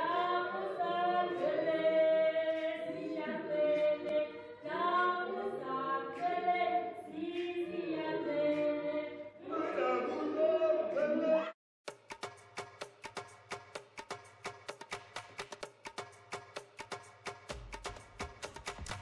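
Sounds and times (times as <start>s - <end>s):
choir singing a cappella: 0.0s - 11.5s.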